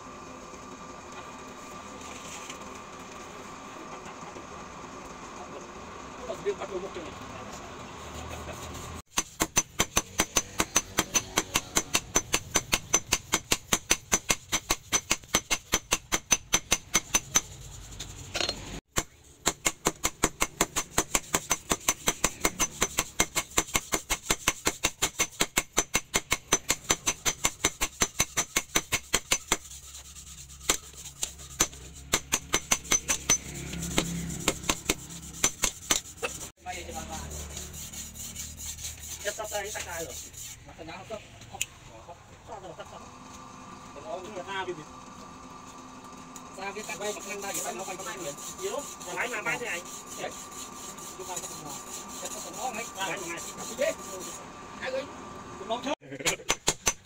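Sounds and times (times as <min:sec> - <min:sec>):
hammer beating steel on anvil: 0:09.1 - 0:17.5, 0:18.4 - 0:29.6, 0:31.5 - 0:36.1.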